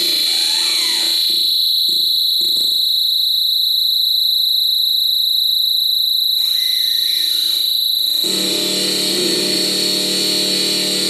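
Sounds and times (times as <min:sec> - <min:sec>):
high-pitched electronic drone: 0:06.4 - 0:11.0.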